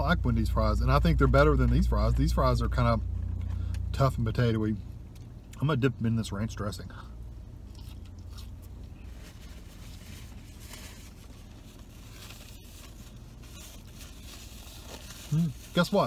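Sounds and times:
low hum in car: 0.0 - 16.0
chewing: 7.6 - 9.0
paper crinkling: 8.3 - 16.0.

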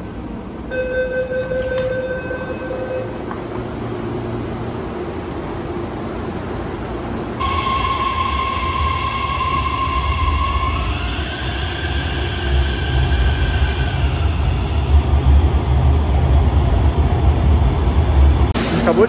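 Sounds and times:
door warning tone: 0.7 - 3.2
train traction motor whine: 7.4 - 18.3.

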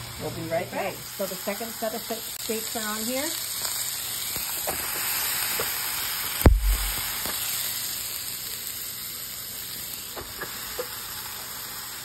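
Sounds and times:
steaks sizzling on a grill: 0.0 - 12.0
thump: 6.4 - 7.0.

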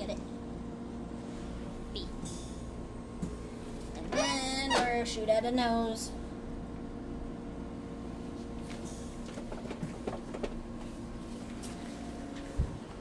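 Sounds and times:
electrical equipment hum: 0.0 - 13.0.

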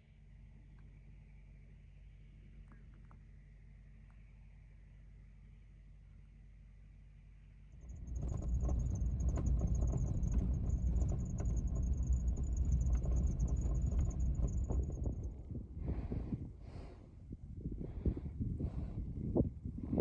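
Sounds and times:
thin high whine: 7.8 - 15.6
vehicle rumbling on gravel: 7.8 - 16.3.

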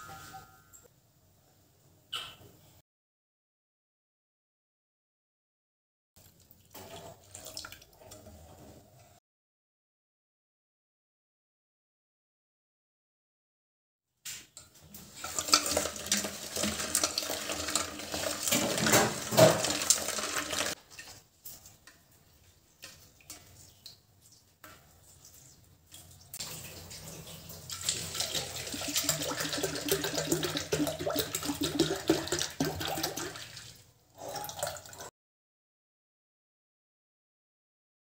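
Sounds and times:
water sloshing in a metal bowl: 6.2 - 8.8, 14.6 - 35.1
milk pouring into a bowl: 15.2 - 21.1, 27.7 - 33.8.

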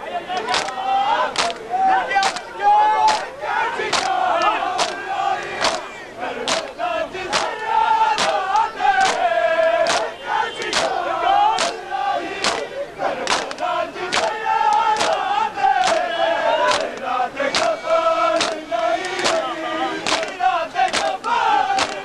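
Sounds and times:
crowd chanting in unison: 0.0 - 22.0
hands slapping chests: 0.4 - 0.8, 1.4 - 1.6, 2.2 - 2.5, 3.1 - 3.3, 3.9 - 5.0, 5.6 - 5.8, 6.5 - 7.5, 8.2 - 11.0, 11.6 - 11.8, 12.4 - 15.2, 15.8 - 16.1, 16.7 - 17.7, 18.4 - 21.2, 21.8 - 22.0.

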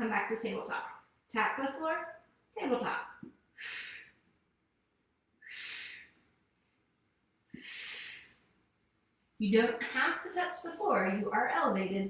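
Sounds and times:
woman exhaling forcefully: 7.6 - 8.3.

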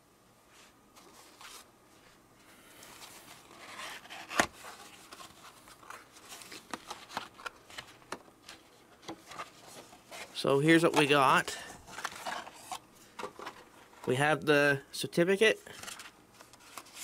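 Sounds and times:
paper rustling: 2.8 - 14.1, 15.7 - 17.0.

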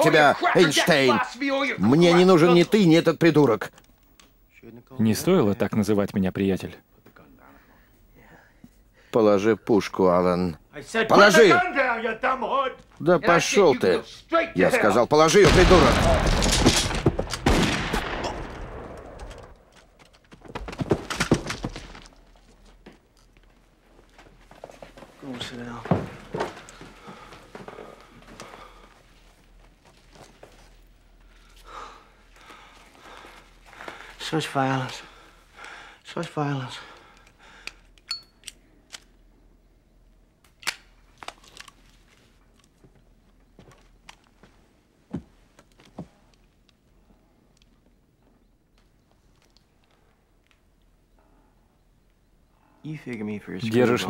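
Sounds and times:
gunshots: 15.4 - 19.6.

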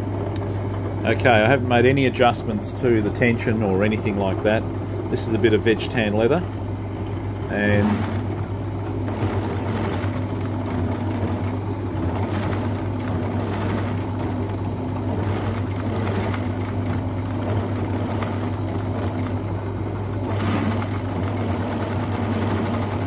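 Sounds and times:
sewing machine motor hum: 6.9 - 23.0
sewing machine needle clatter: 7.6 - 19.4, 20.3 - 23.0.

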